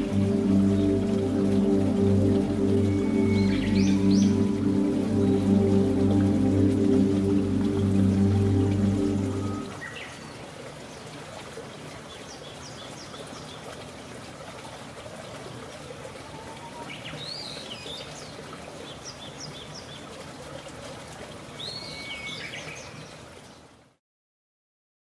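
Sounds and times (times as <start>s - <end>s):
birds chirping: 0.0s - 10.2s
waterfall rushing: 0.0s - 14.7s.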